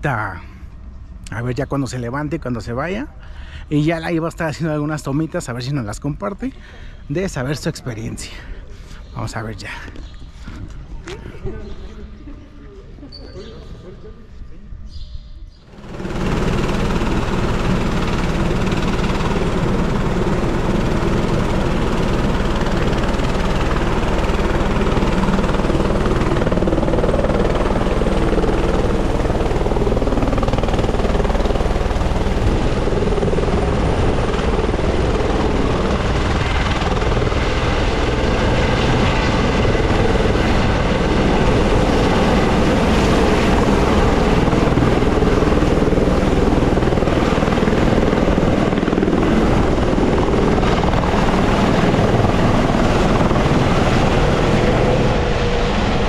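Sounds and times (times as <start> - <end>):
helicopter turbine whine and rotors: 15.6 - 56.0.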